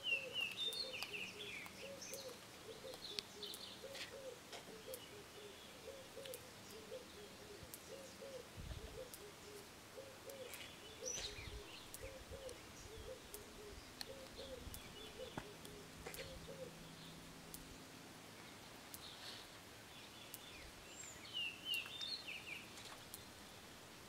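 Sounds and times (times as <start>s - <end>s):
higher bird chirps: 0.0s - 17.3s.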